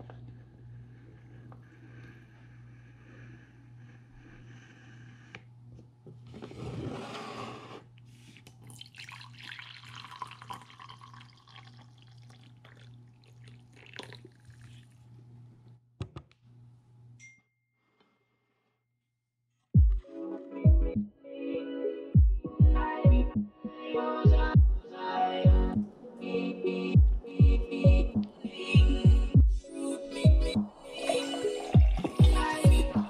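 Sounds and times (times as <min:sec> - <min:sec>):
steady low hum: 0:00.0 - 0:06.9, 0:25.5 - 0:33.0
coffee pouring into mug: 0:08.6 - 0:15.0.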